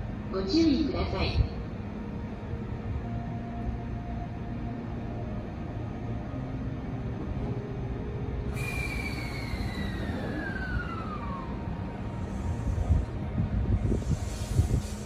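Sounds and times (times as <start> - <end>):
low rumble: 0.0 - 15.0
train motor whine falling: 8.5 - 15.0.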